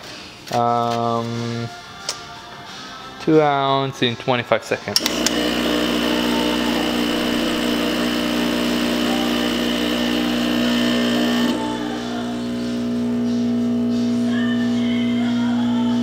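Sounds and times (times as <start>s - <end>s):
espresso machine pump humming: 5.0s - 14.8s.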